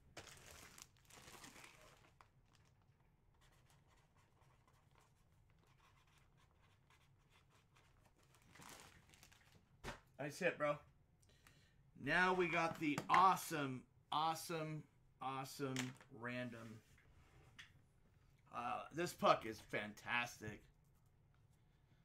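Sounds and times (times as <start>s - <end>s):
plastic bag crinkling: 0.0s - 3.0s, 8.1s - 9.7s.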